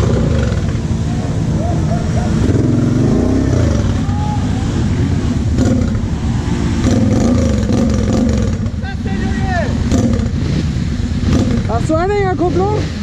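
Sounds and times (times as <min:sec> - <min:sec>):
quad bike engine revving: 0:00.0 - 0:13.0.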